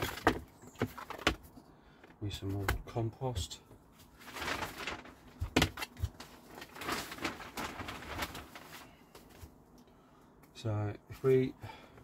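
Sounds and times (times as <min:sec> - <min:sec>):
compost rustling and scraping: 0:04.0 - 0:09.6.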